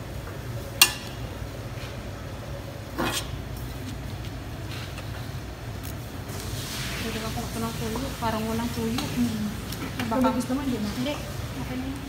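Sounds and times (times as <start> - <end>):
metal clanking on a wok: 0.8 - 1.3, 2.9 - 3.4.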